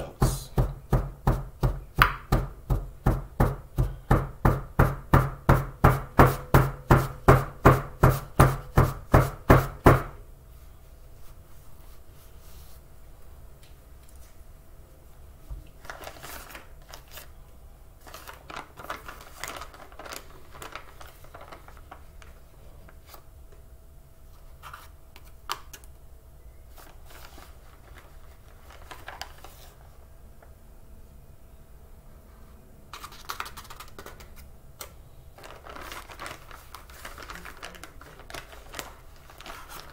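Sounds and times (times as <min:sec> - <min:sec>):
paper bag rustling and crinkling: 0:15.7 - 0:17.4, 0:18.0 - 0:23.3, 0:26.7 - 0:30.0, 0:35.3 - 0:39.9.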